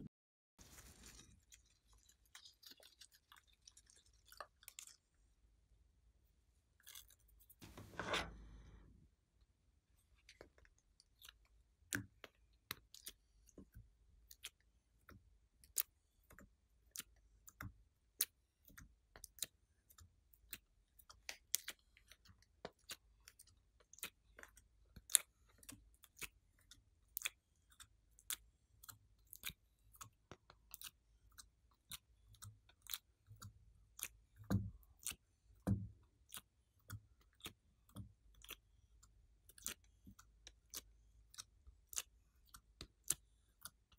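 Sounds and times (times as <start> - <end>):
clay pieces clicking and tapping: 11.8 - 43.9.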